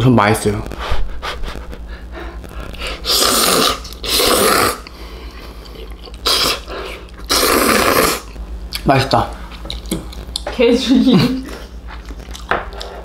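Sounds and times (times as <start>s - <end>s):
person slurping noodles: 2.8s - 8.4s.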